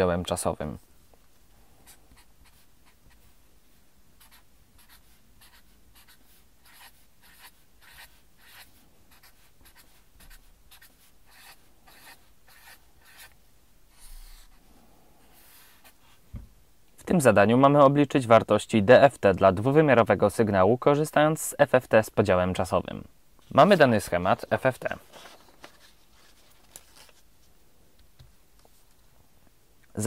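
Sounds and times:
marker scratching on paper: 0:01.8 - 0:03.3, 0:04.2 - 0:14.5.

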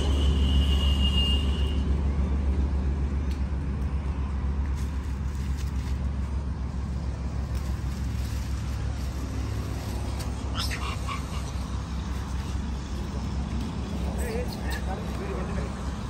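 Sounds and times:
high-pitched animal squeal: 0:10.4 - 0:11.8.

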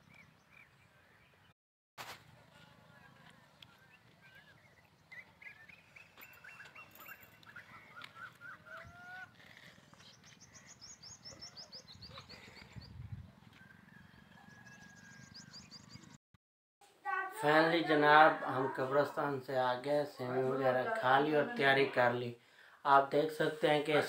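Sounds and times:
small birds chirping: 0:02.9 - 0:16.2.

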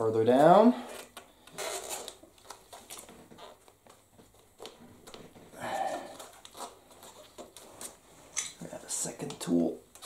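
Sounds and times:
person exhaling: 0:05.5 - 0:06.3.

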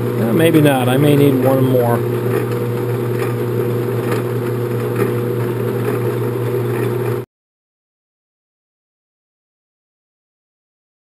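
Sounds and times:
metal lathe humming: 0:00.0 - 0:07.2.

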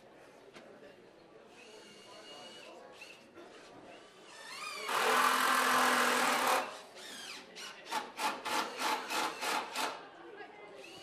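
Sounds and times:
cordless drill driving screw into wood: 0:04.5 - 0:10.0.

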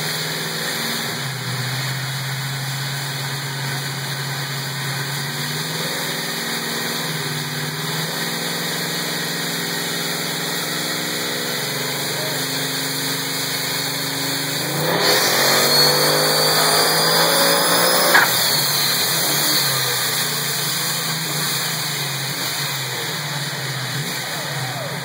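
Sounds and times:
car engine idling: 0:01.2 - 0:25.0.

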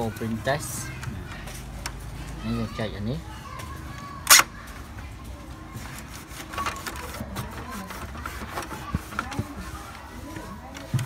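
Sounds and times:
sharp plastic snap: 0:04.2 - 0:04.5
plastic parts clicking and rattling: 0:06.4 - 0:11.0.

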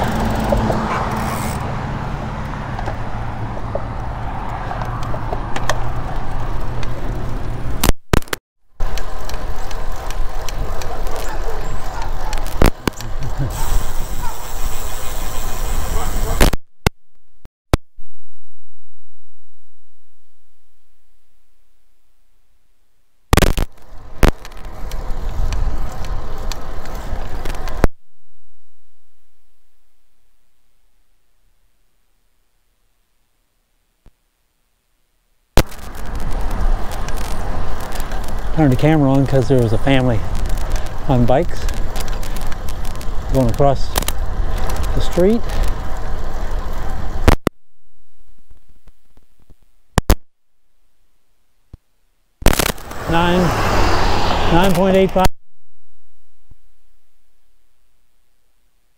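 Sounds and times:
road rumble: 0:00.0 - 0:17.5, 0:23.3 - 0:28.0, 0:35.5 - 0:50.1, 0:52.4 - 0:57.9.

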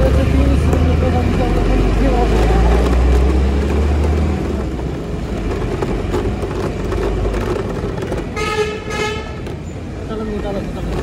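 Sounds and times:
scooter engine running: 0:00.0 - 0:09.7
wind and road rumble: 0:00.0 - 0:11.0
vehicle horn toot: 0:08.3 - 0:09.4.

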